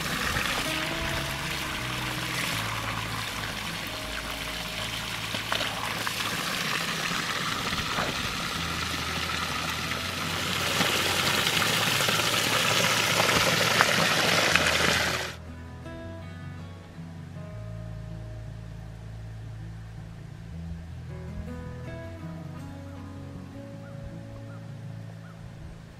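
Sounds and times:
spring water pouring: 0.0s - 15.4s.

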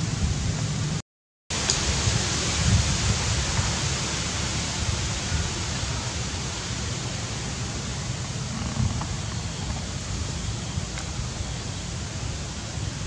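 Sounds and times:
outdoor hiss: 0.0s - 13.0s
wind buffeting microphone: 1.8s - 6.3s, 7.7s - 13.0s.

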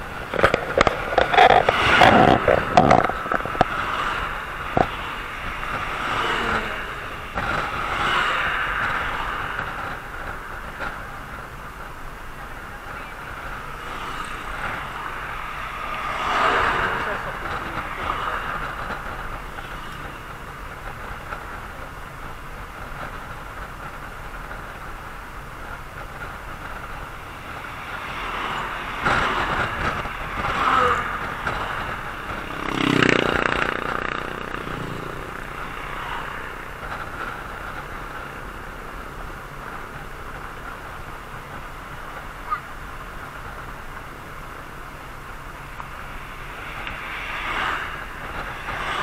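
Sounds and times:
passing traffic: 0.0s - 49.0s
road and wind noise: 0.0s - 49.0s.

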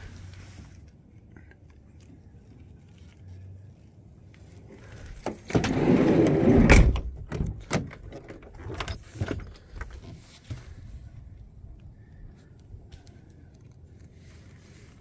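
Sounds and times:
rustling handling noise: 0.0s - 5.8s.

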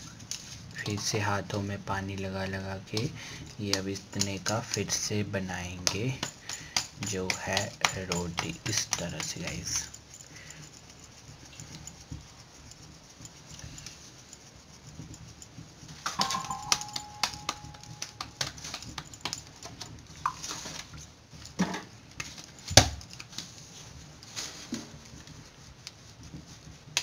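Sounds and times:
wet hands patting dough: 0.8s - 10.1s, 11.2s - 23.6s, 24.8s - 27.0s
ringing clink of glass bangles: 16.1s - 19.4s.

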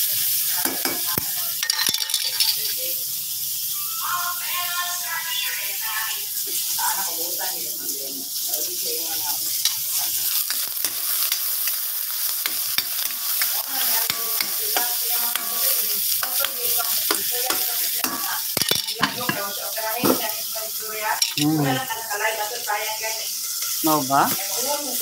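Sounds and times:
vegetables sizzling in oil: 0.0s - 25.0s
spatula clicking and scraping wok: 0.2s - 2.8s, 9.2s - 19.6s, 23.1s - 25.0s.

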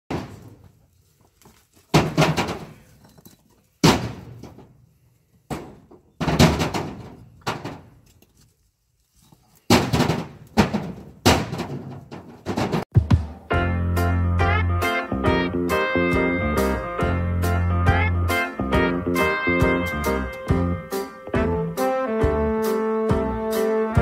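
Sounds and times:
bricks knocking into trailer: 0.1s - 0.6s, 1.9s - 2.9s, 3.8s - 4.7s, 5.5s - 7.9s, 9.7s - 12.9s.

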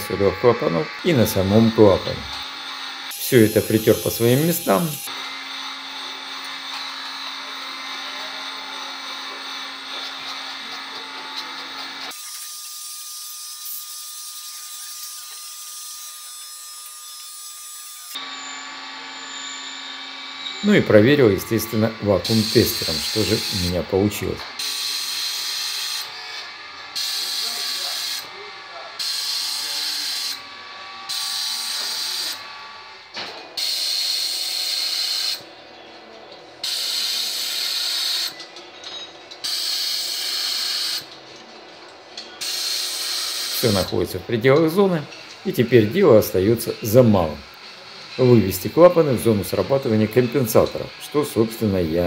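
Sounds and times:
vacuum tester hissing: 0.0s - 5.3s, 20.7s - 26.0s
motor whine: 0.0s - 12.1s.

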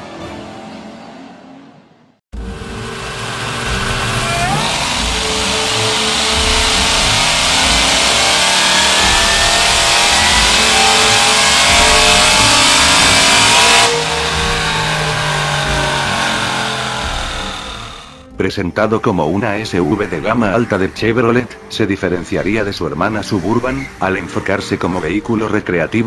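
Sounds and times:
car engine at full throttle: 2.4s - 18.2s
engine and rollers winding down: 2.4s - 18.4s.

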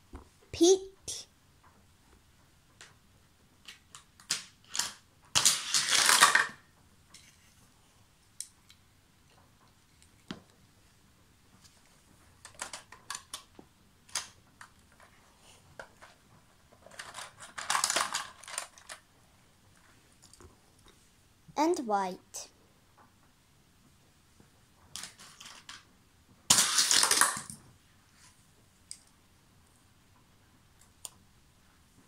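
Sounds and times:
plastic toy cars clattering: 3.6s - 7.4s, 12.4s - 15.1s, 15.7s - 19.1s, 24.9s - 25.9s, 26.5s - 27.6s
toy car clicks: 3.7s - 6.6s, 26.5s - 27.6s.

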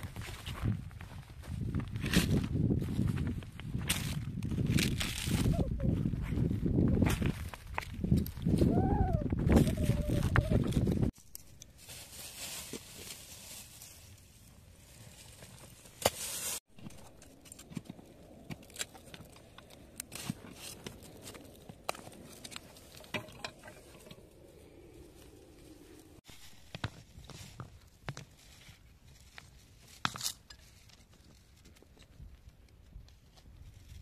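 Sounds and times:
leaves rustling: 9.6s - 31.7s.

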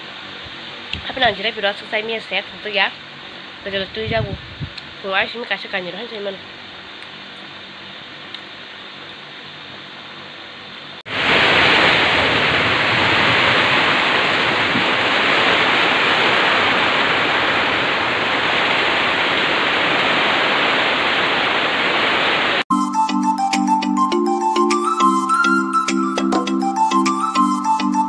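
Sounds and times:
steady background hum: 0.0s - 21.5s
heavy rain pouring: 11.1s - 22.7s.

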